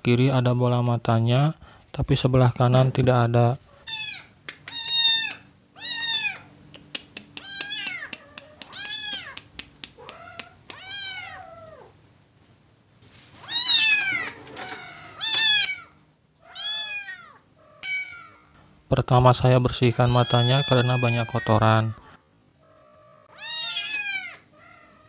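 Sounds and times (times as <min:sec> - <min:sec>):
kitten meowing: 0:03.9 - 0:06.5, 0:07.4 - 0:09.4, 0:10.0 - 0:11.9, 0:13.4 - 0:18.4, 0:20.0 - 0:21.5, 0:22.8 - 0:25.0.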